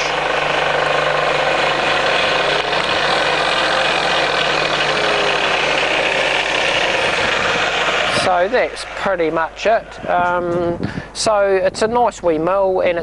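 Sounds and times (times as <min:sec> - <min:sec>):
milling machine humming and whining: 0:00.0 - 0:10.4.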